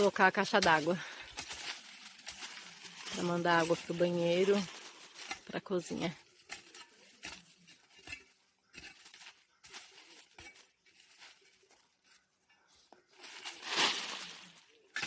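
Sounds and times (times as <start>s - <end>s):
shovel scraping soil and leaves: 0.0s - 12.2s, 13.1s - 15.0s.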